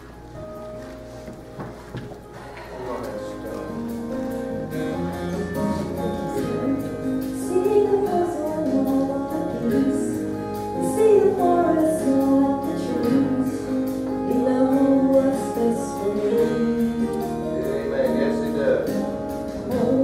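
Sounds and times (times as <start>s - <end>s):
woman singing into a microphone: 5.3s - 17.4s, 19.6s - 20.0s.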